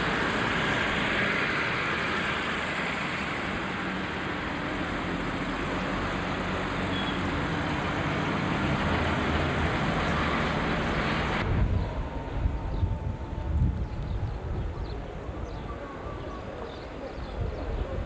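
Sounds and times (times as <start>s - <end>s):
road traffic noise: 0.0s - 18.0s
vehicle engine running nearby: 0.0s - 18.0s.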